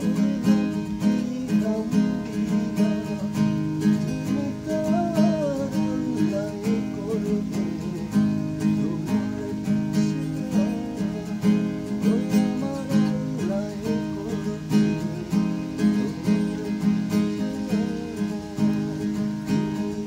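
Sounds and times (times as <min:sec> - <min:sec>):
acoustic guitar strumming: 0:00.0 - 0:20.0.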